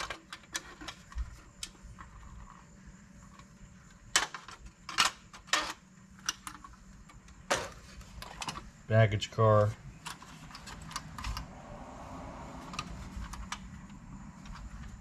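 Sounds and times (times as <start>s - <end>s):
metal toy cars clinking: 0.0s - 2.6s, 4.1s - 6.8s.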